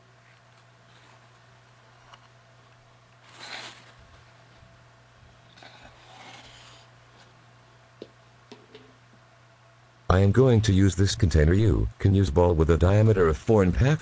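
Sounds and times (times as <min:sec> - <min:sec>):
steady low hum: 0:00.0 - 0:14.0
paper towel rustling: 0:00.2 - 0:01.4, 0:03.2 - 0:04.7.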